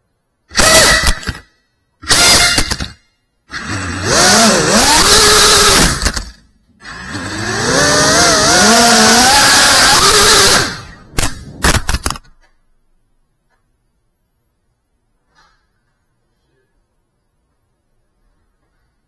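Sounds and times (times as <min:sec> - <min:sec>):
quadcopter motors whining: 0:03.5 - 0:11.1.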